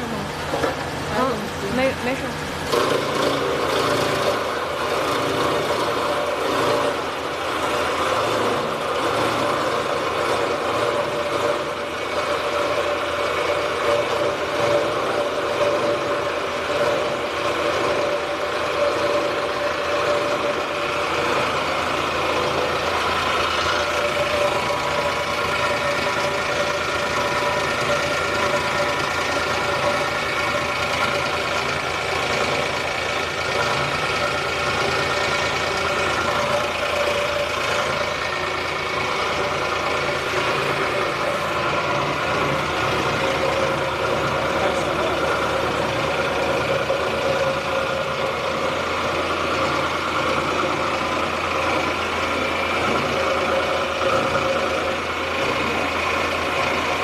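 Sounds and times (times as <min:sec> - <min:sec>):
machine drone with whining tones: 0:00.0 - 0:57.0.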